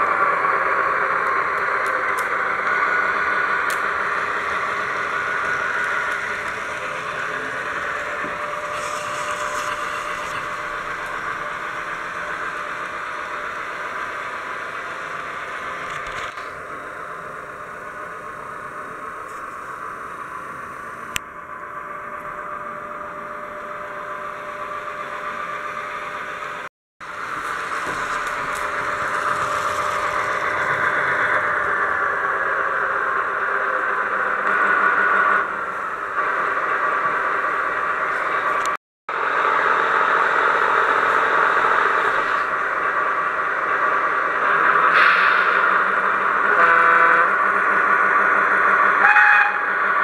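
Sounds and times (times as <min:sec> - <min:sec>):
model train wheels whirring on track: 0:00.0 - 0:50.0
small electric motor humming: 0:01.9 - 0:15.9.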